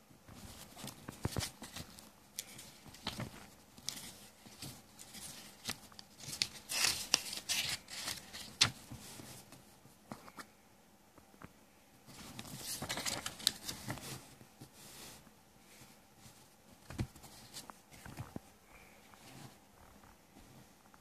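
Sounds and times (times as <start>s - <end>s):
paper pages turning: 0.4s - 9.3s, 12.1s - 14.2s.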